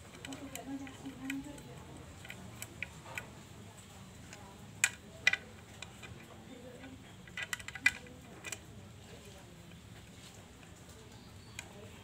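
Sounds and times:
metal parts clicking and clinking: 4.3s - 8.6s.

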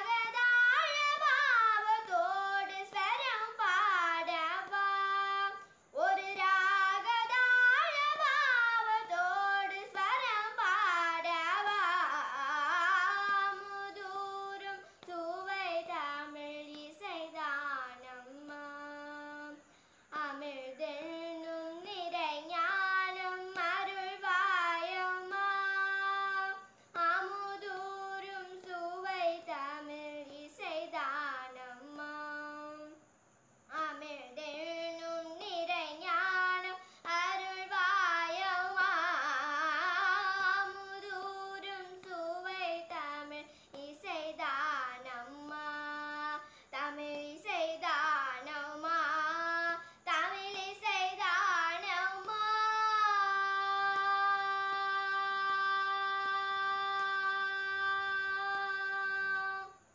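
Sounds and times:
girl singing solo: 0.0s - 33.1s, 33.7s - 59.9s
short breaths: 19.7s - 20.1s, 43.5s - 43.7s, 46.4s - 46.7s.

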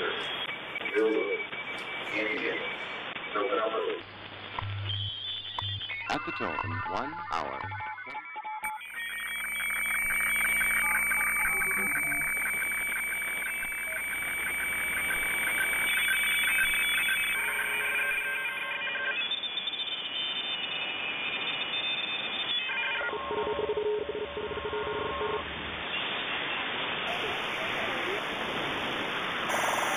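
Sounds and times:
radio static: 0.0s - 7.8s, 8.7s - 19.2s, 27.1s - 29.9s
steady high radio tone: 0.0s - 7.8s, 8.6s - 25.4s, 27.1s - 29.9s
tones keying on and off: 8.7s - 18.6s.

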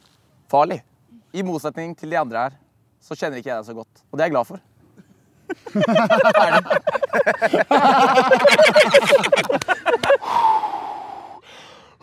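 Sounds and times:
young men laughing: 5.0s - 10.4s
long breathy vocal sound: 10.2s - 12.0s.

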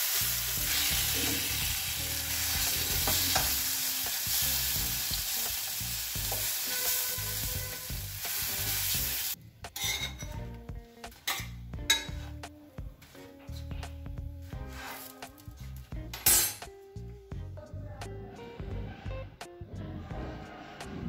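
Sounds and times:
eggs sizzling in butter: 0.0s - 9.4s
wooden spatula scraping griddle: 14.6s - 15.5s.

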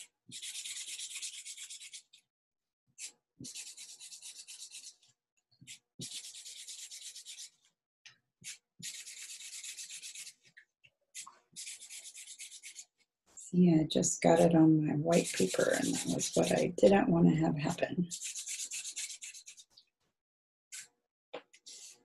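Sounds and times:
marker scribbling on paper: 0.0s - 2.2s, 3.0s - 5.0s, 5.6s - 7.6s, 8.4s - 10.5s, 11.6s - 13.0s, 15.1s - 16.7s, 18.0s - 19.7s, 21.6s - 22.0s.

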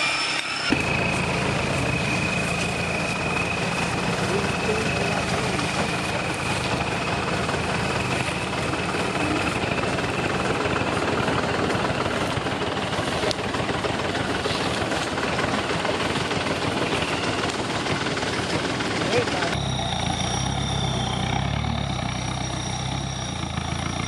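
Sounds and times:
faint high whine: 0.0s - 13.0s, 19.0s - 24.0s
vehicle engine running: 0.7s - 24.0s.

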